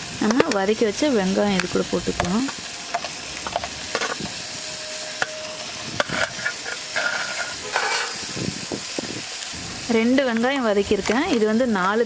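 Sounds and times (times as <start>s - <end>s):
oil sizzling in a pan: 0.0s - 12.0s
onion slices scraped from steel plate: 6.0s - 8.2s.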